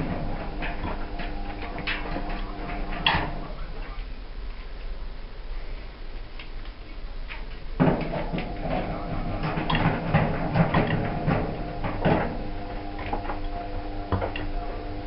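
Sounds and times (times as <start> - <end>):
metal panels clattering and scraping: 0.0 - 4.0, 7.3 - 13.8
steady hum: 0.0 - 15.0.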